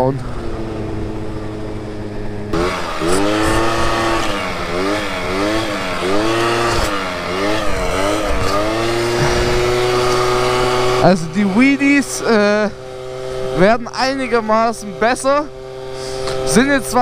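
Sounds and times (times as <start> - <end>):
scooter engine revving: 0.2 - 17.0
wind rush: 8.3 - 11.1.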